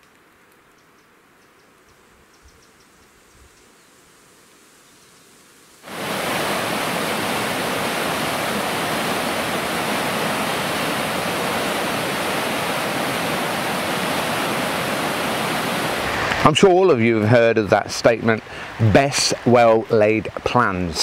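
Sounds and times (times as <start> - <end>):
water rushing: 5.8 - 21.0.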